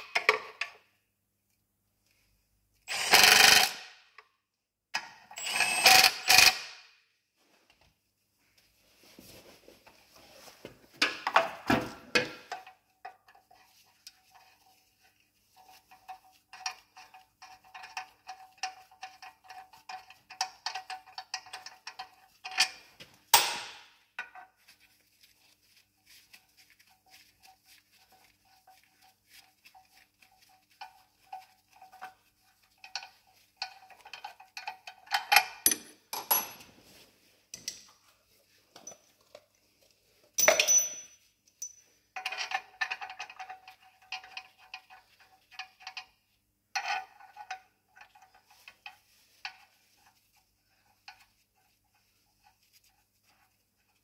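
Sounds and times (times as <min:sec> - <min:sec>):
hand ratchet clicking: 0:02.9 - 0:03.9, 0:05.4 - 0:06.8
light metal clinks: 0:40.4 - 0:41.9.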